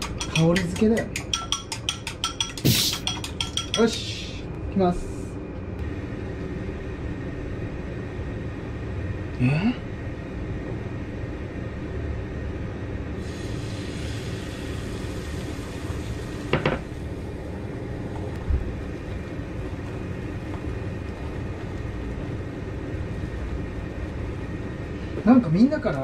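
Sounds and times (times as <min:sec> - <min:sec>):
egg sizzling in frying pan: 0:13.2 - 0:24.6.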